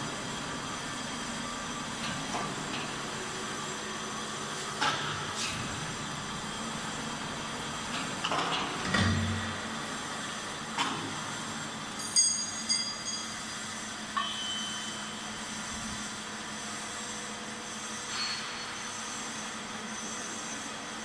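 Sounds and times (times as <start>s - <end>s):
faint high whine: 14.2s - 15.4s.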